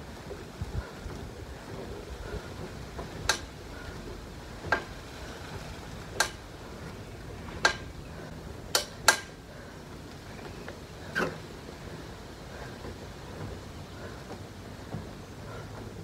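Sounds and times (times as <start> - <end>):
elliptical trainer clinking: 0.0 - 16.0
low background noise: 0.0 - 16.0.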